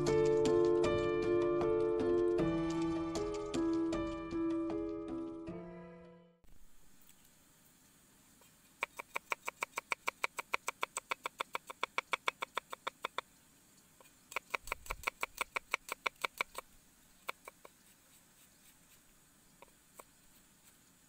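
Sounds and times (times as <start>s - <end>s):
cleaver chopping on wooden block: 8.8s - 13.2s, 14.3s - 16.6s.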